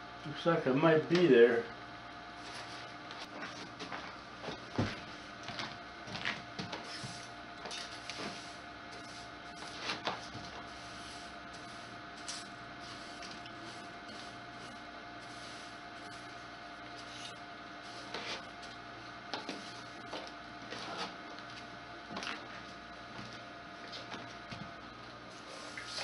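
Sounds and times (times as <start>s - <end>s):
background hum: 0.0s - 26.0s
hand brush sweeping metal: 6.8s - 16.3s, 17.0s - 18.5s, 25.4s - 26.0s.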